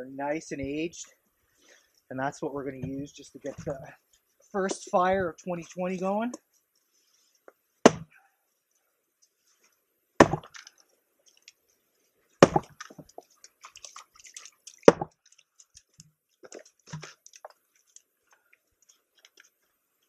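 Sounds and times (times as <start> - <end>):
axe splitting logs: 7.8 - 8.2, 10.2 - 10.6, 12.4 - 13.2, 14.8 - 15.2.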